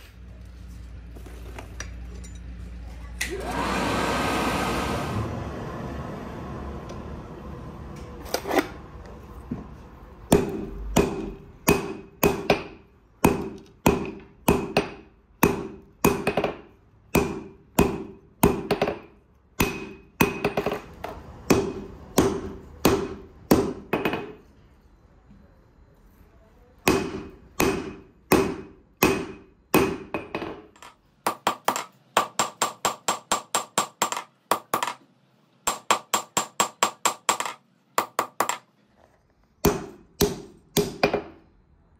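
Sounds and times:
hammer striking anvil: 10.3s - 20.8s, 21.5s - 24.4s, 26.9s - 35.0s, 39.6s - 41.4s.

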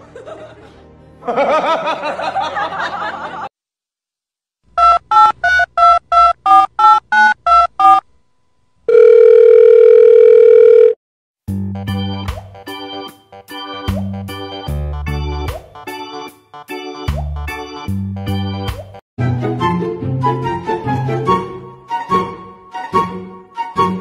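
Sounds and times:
music: 0.0s - 2.6s, 11.5s - 24.0s
phone keypad beeps: 4.8s - 8.0s, 8.9s - 11.0s
steady phone tone: 8.9s - 11.0s.

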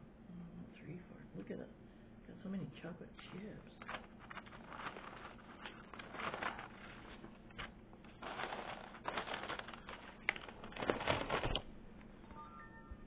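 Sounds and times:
plastic bag crinkling: 3.3s - 12.3s.

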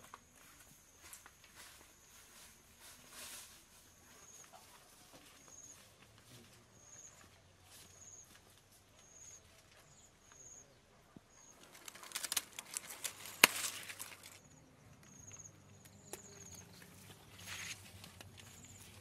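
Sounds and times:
rustling leaves and vines: 0.0s - 10.1s, 11.3s - 19.0s
faint high chirps: 0.4s - 12.3s, 14.4s - 19.0s
stem snapping: 11.6s - 14.4s.

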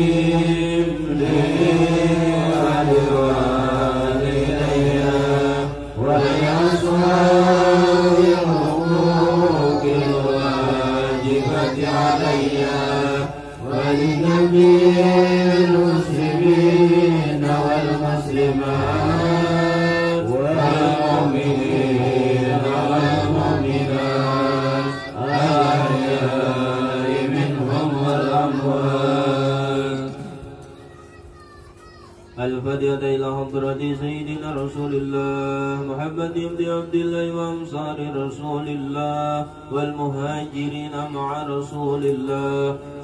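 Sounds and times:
men chanting melodically: 0.0s - 30.6s.

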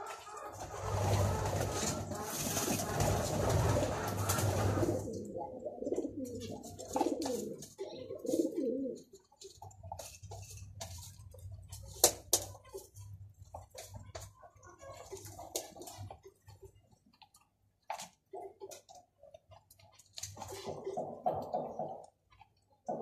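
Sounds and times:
pigeon cooing: 0.0s - 9.6s, 20.4s - 22.2s, 22.8s - 23.0s.

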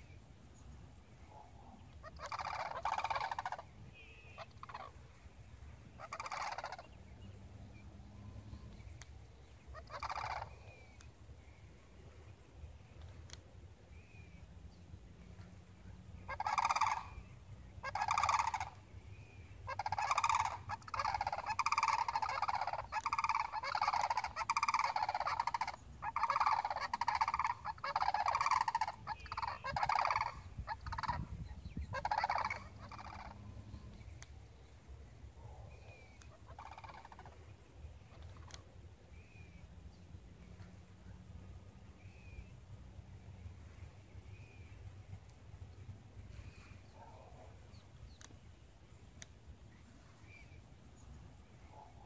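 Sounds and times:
cranes calling: 1.3s - 11.6s, 15.3s - 34.3s, 35.8s - 39.7s.

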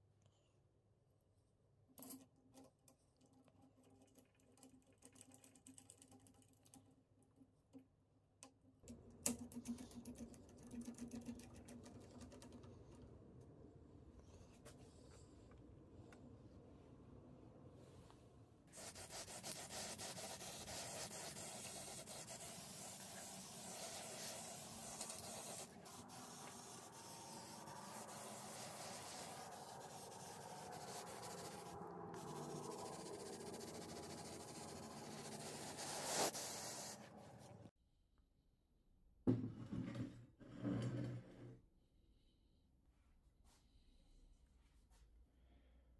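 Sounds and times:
spray-paint can hissing: 18.8s - 37.0s.

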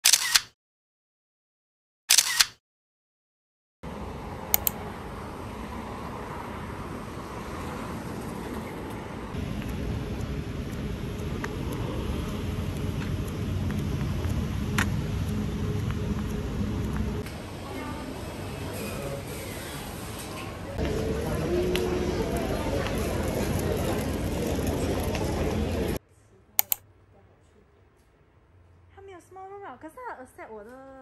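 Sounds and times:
camera shutter click: 0.0s - 0.5s, 2.1s - 2.6s
short clicks: 0.0s - 0.5s, 2.1s - 2.6s, 4.5s - 4.8s, 26.6s - 26.8s
city street traffic noise: 3.8s - 30.8s.

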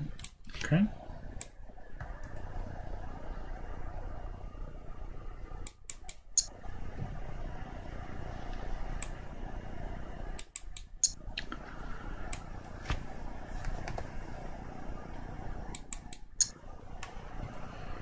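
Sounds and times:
low background hum: 0.0s - 18.0s
computer mouse clicking: 5.6s - 6.5s, 10.4s - 11.5s, 15.7s - 17.2s.

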